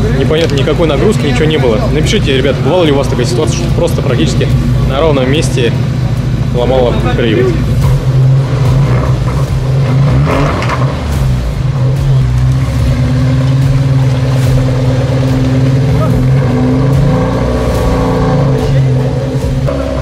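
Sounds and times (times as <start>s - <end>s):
engine running at low revs: 0.0s - 20.0s.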